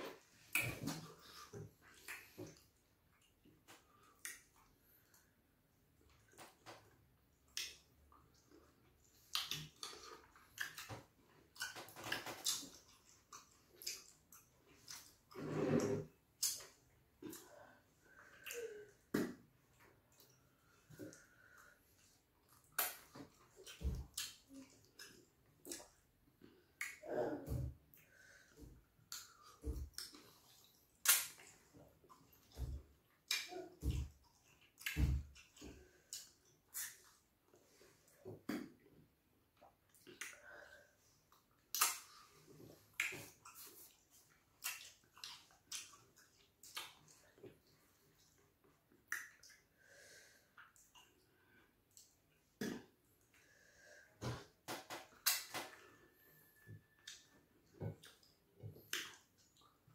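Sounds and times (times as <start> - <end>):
wet lip smacks and chewing: 7.5 - 15.2, 29.1 - 37.3, 41.3 - 49.7, 55.0 - 55.8, 56.8 - 59.8.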